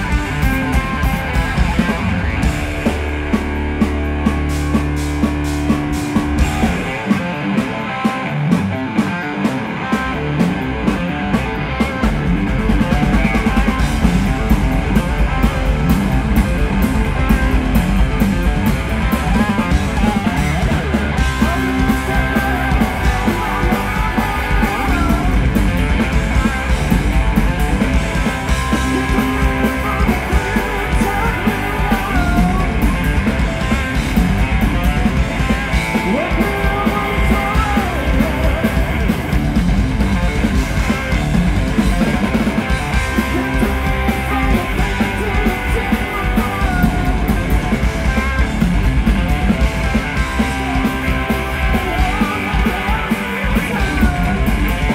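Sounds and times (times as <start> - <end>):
drum kit: 0.0 - 54.9
electric bass: 0.0 - 54.9
electric guitar: 0.0 - 54.9.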